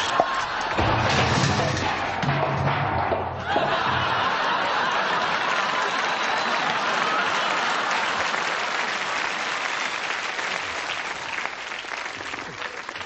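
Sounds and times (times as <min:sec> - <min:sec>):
audience applauding: 0:03.5 - 0:13.0.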